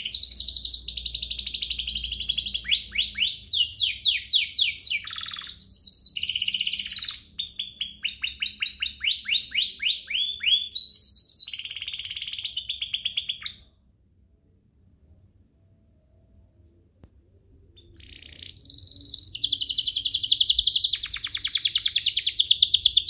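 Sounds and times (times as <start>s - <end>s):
canary singing trills: 0.0s - 13.7s, 17.8s - 23.0s.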